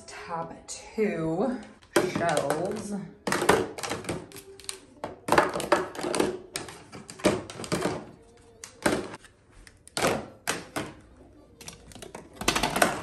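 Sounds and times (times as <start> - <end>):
plastic bins knocking together: 2.0 - 4.3, 5.0 - 8.2, 12.1 - 13.0.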